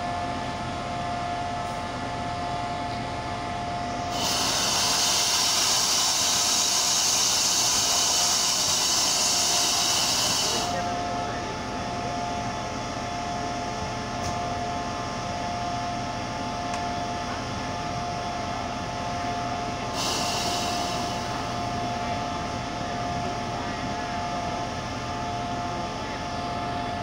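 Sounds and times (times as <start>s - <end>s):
mid-pitched whine: 0.0s - 27.0s
locomotive engine idling: 3.7s - 12.8s
air hissing: 4.1s - 10.8s, 19.9s - 21.5s.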